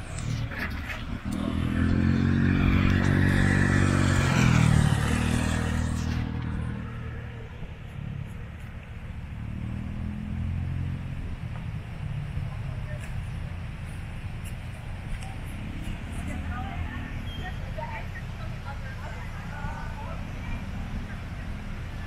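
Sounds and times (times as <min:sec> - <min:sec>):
motor scooter passing: 0:00.0 - 0:08.3.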